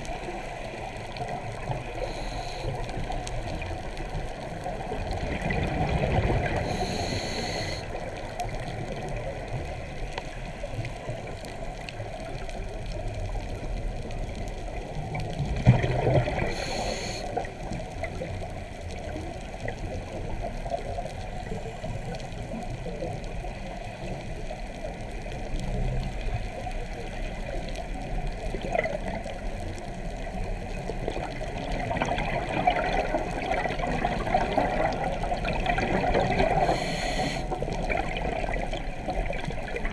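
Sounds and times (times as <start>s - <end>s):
underwater bubbling: 0.0s - 39.9s
hissing regulator breaths: 1.9s - 2.8s, 6.6s - 7.9s, 16.5s - 17.3s, 36.6s - 37.5s.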